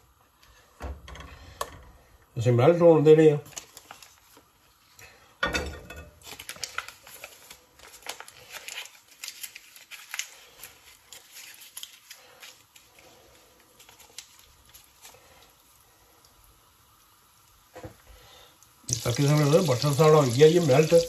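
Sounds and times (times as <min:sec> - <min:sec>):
foil wrapper crinkling: 0:03.4 - 0:04.8, 0:06.2 - 0:15.6, 0:18.9 - 0:21.0.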